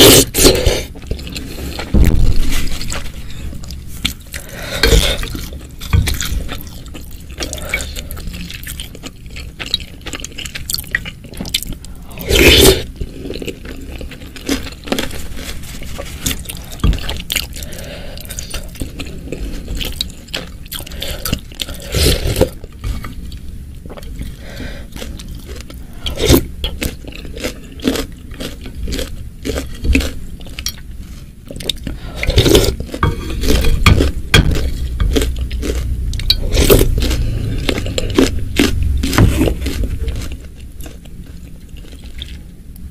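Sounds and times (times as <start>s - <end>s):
chewing: 0.0s - 42.6s
spoon scraping glass dish: 33.0s - 34.0s.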